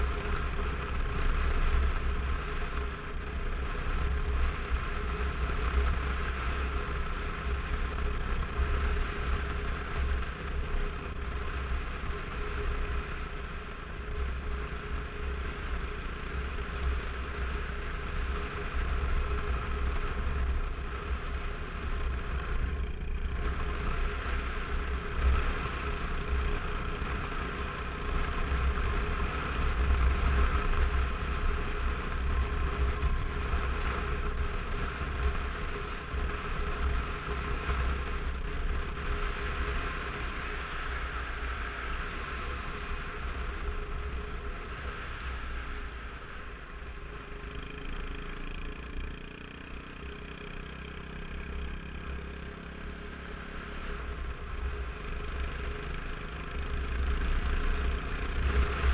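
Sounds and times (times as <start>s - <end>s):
motorcycle engine running: 0.0s - 58.9s.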